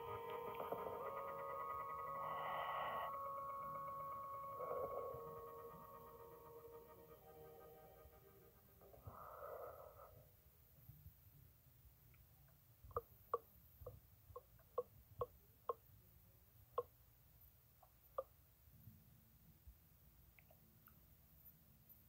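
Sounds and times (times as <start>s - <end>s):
low hum: 0.0s - 10.8s.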